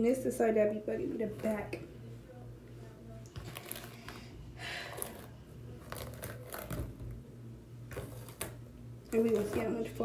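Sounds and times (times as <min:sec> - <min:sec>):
hair rustling: 0:07.9 - 0:10.0.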